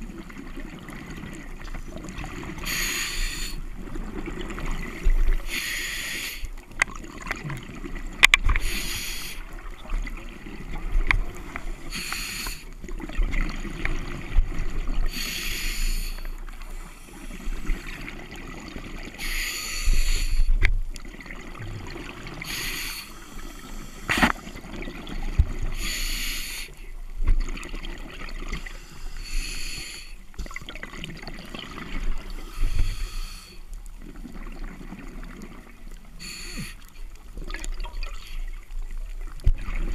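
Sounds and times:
regulator breathing hiss: 2.6 - 3.6, 5.4 - 6.5, 8.6 - 9.5, 11.8 - 12.7, 15.1 - 18.0, 19.2 - 20.6, 22.4 - 24.4, 25.8 - 26.8, 28.6 - 30.2, 32.4 - 33.6, 36.2 - 37.0.

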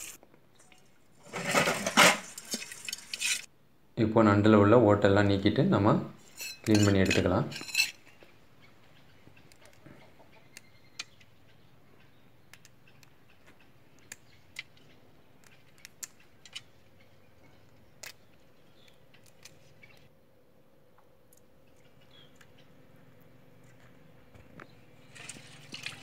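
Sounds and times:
crab shell clicking and cracking: 15.4 - 16.6, 18.0 - 19.6.

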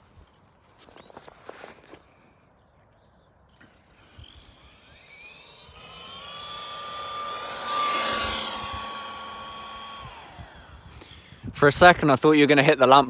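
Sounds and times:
toy truck motor whining: 3.6 - 11.5.

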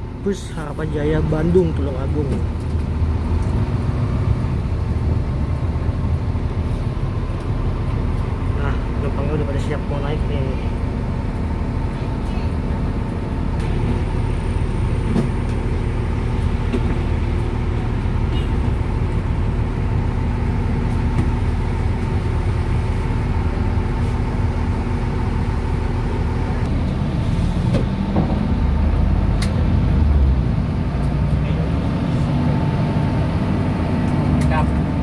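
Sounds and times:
diesel engine running: 0.0 - 35.0.

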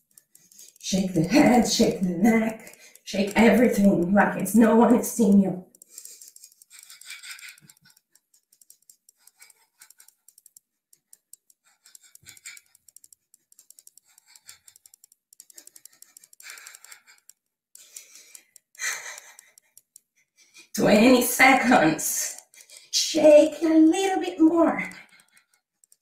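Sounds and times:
woman breathing heavily: 2.6 - 3.1, 15.8 - 17.2, 17.8 - 19.6, 22.5 - 23.0.

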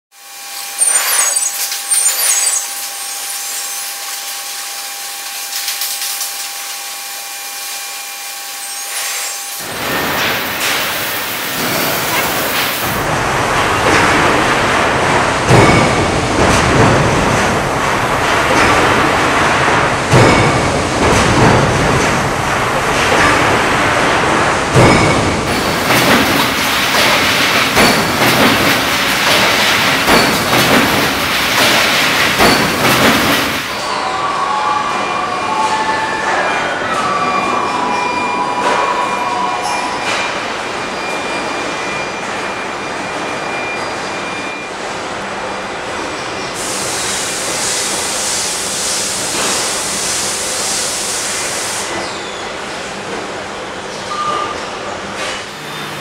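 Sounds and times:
stamping press machine din: 8.8 - 33.9, 55.2 - 56.0
short beep: 43.1 - 44.7, 54.1 - 54.6
loud hiss: 46.6 - 51.9.

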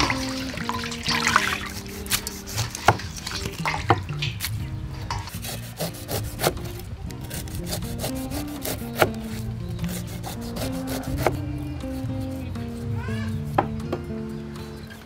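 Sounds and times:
cleaver cutting on wooden board: 1.6 - 3.2, 5.2 - 12.8.

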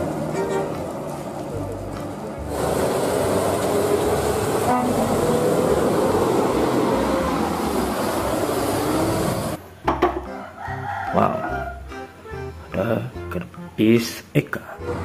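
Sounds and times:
bus engine running: 0.0 - 9.7, 14.7 - 15.0
tyre hiss on wet road: 2.4 - 9.6.

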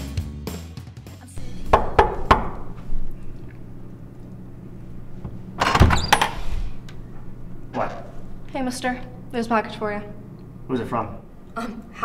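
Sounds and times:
background music: 0.0 - 2.8
knocks on wooden door: 1.6 - 2.8
door latch click: 5.1 - 8.5.

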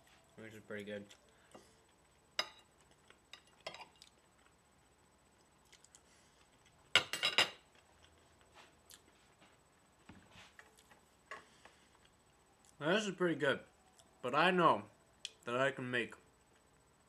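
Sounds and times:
cutlery clinking against plate: 7.0 - 7.6.

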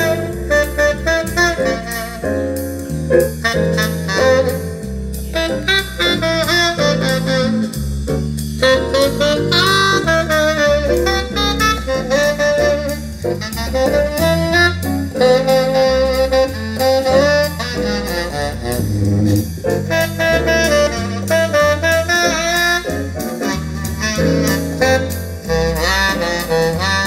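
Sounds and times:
saxophone jazz with bass and drums: 0.0 - 27.0.

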